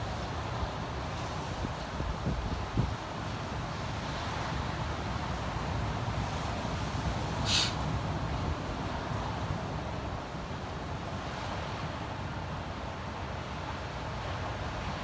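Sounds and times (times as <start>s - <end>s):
wind rumbling on microphone: 0.0s - 12.2s
hissing bird call: 7.4s - 7.8s.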